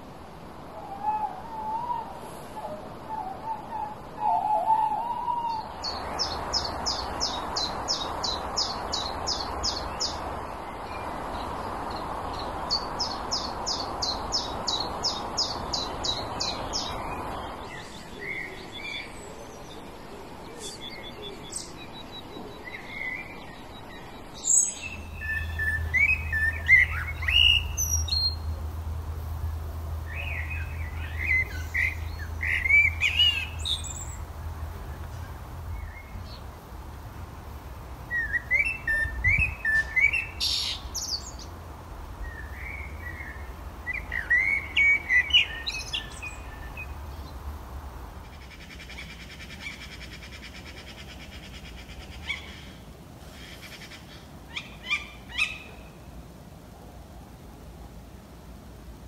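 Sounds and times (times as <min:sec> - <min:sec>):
blackbird song: 0:00.9 - 0:28.8, 0:30.0 - 0:36.6, 0:38.1 - 0:41.6, 0:42.2 - 0:47.4, 0:48.3 - 0:56.0.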